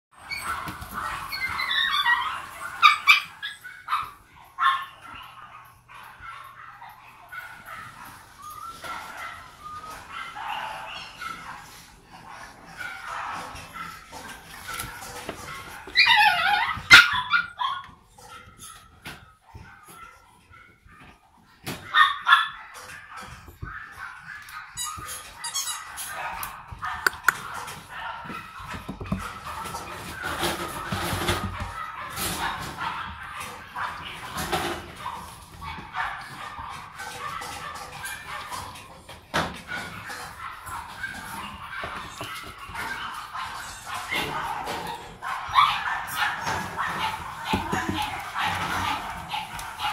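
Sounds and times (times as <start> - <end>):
puppy whining and whimpering: 0.2 - 5.4, 6.8 - 14.3, 15.0 - 21.2
puppy yipping and barking: 0.2 - 49.9.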